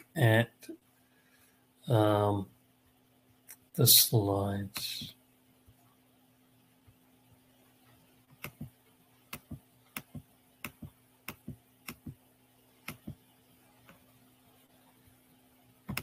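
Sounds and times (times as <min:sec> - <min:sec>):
low steady hum: 0:00.0 - 0:16.0
computer mouse clicking: 0:08.3 - 0:08.7, 0:09.3 - 0:12.2, 0:12.8 - 0:13.2.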